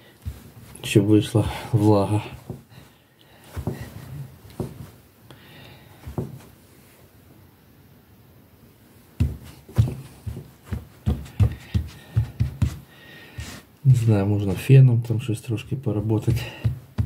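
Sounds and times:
hand patting a towel: 0.2s - 1.0s, 1.8s - 5.0s, 6.0s - 6.6s, 9.2s - 13.7s, 16.0s - 17.0s.

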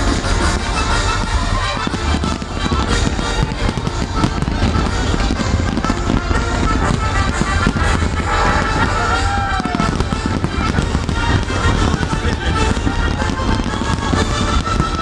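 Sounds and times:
firework shells bursting: 0.0s - 15.0s
music playing: 0.0s - 15.0s.

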